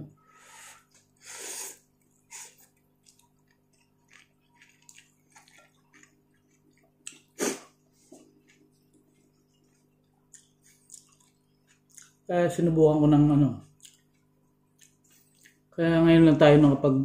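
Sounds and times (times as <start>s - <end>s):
wet chewing and mouth smacks: 1.8s - 12.3s, 13.6s - 15.7s
slurping noodles: 7.3s - 7.8s.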